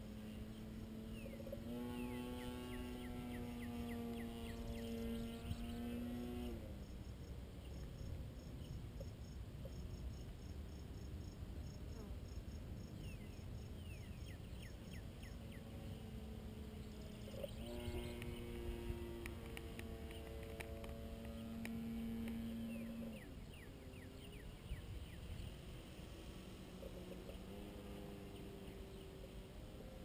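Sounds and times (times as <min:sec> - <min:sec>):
electric motor and propeller whine: 0:00.0 - 0:06.8, 0:14.6 - 0:30.0
pulsing insect chirp: 0:00.0 - 0:29.8
wind rumble on microphone: 0:00.0 - 0:29.8.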